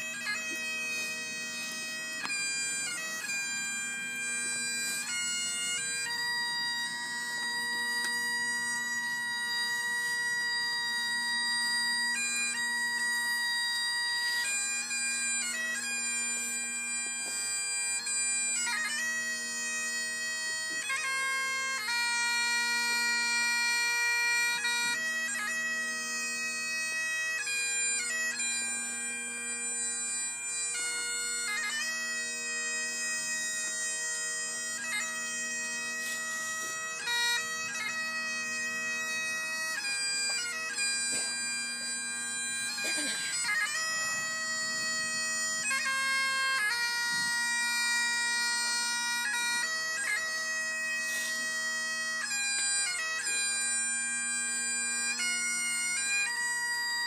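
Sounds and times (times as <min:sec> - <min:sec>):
bagpipes playing slow tune: 0:00.0 - 0:57.0.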